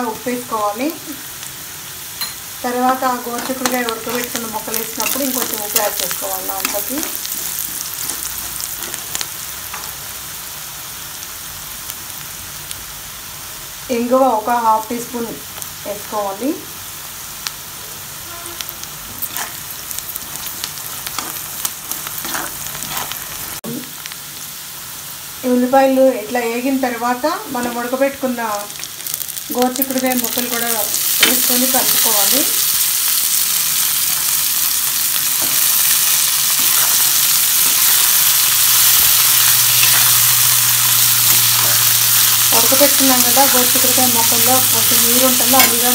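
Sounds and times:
onions and spices frying in oil: 0:00.0 - 0:45.9
spatula stirring: 0:19.1 - 0:23.6.

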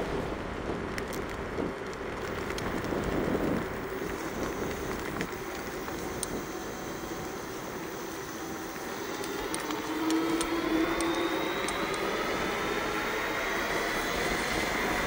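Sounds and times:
tyres rolling on asphalt: 0:00.0 - 0:15.0
wind rushing over microphone: 0:00.0 - 0:15.0
light ticks: 0:00.9 - 0:06.4
faint steady whine: 0:01.6 - 0:15.0.

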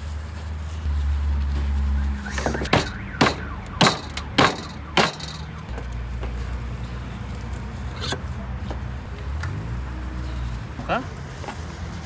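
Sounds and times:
sharp knocks: 0:02.3 - 0:05.9.

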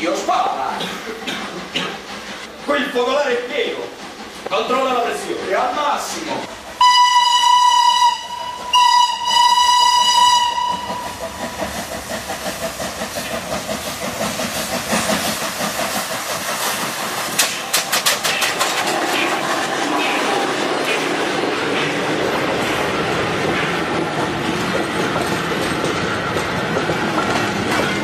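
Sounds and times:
train running with rhythmic beat: 0:00.0 - 0:28.0
steam train whistle: 0:06.8 - 0:11.2.

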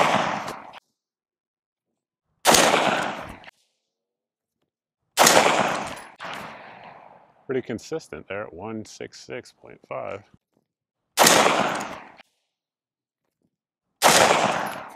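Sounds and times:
rifle shots echoing: 0:00.0 - 0:00.8, 0:02.4 - 0:03.5, 0:05.2 - 0:07.3, 0:11.2 - 0:12.2, 0:14.0 - 0:14.9.

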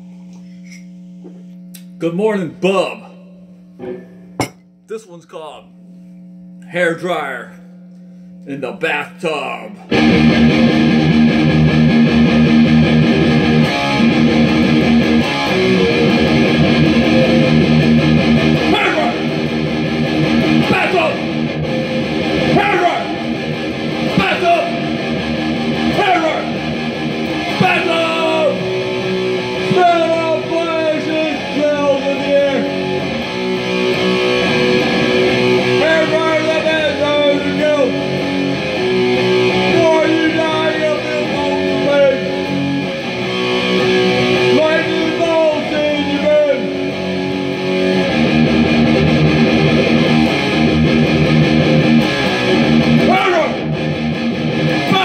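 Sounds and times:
electric guitar strumming chords: 0:09.9 - 0:55.0
man singing: 0:29.6 - 0:32.7, 0:35.8 - 0:38.0, 0:39.6 - 0:42.4.

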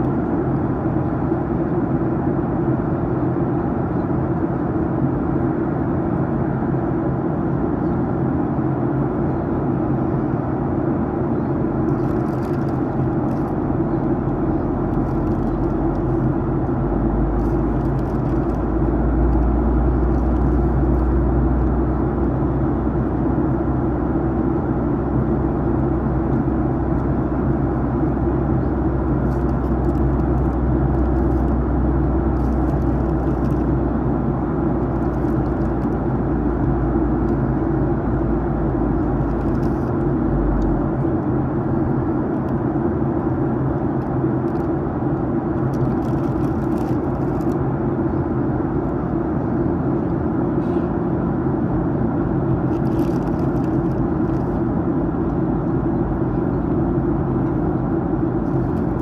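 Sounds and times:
airflow rush in aircraft cabin: 0:00.0 - 0:59.0
jet engines humming: 0:00.5 - 0:45.7
deep low rumble: 0:10.9 - 0:49.6, 0:51.6 - 0:59.0.

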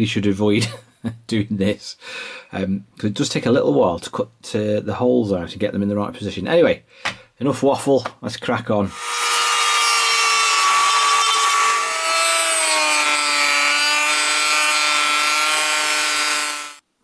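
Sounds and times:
rotary tool cutting plastic: 0:08.9 - 0:16.8.

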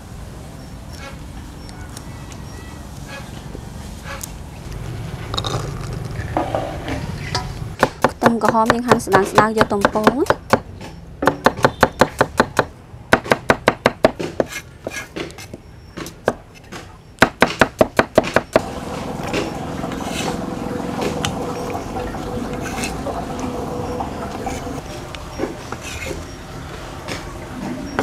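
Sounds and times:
faint hum: 0:18.6 - 0:28.0.

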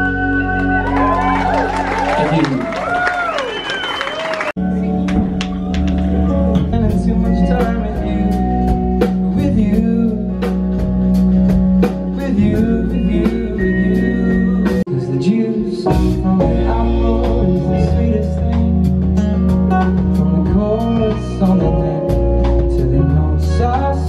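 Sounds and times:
bass: 0:00.0 - 0:24.0
drums: 0:00.0 - 0:24.0
person singing: 0:06.2 - 0:10.9, 0:11.8 - 0:24.0.

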